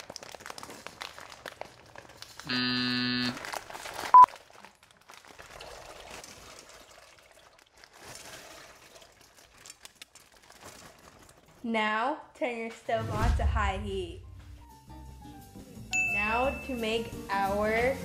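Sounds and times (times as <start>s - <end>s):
dry pasta poured into a pot: 0.0s - 2.4s, 3.5s - 11.5s
plastic bag crinkling: 0.0s - 11.7s
electronic buzzing tone: 2.5s - 3.4s.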